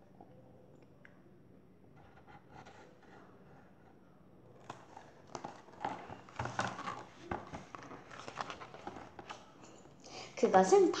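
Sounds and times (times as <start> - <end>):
book pages rustling: 4.6 - 10.0.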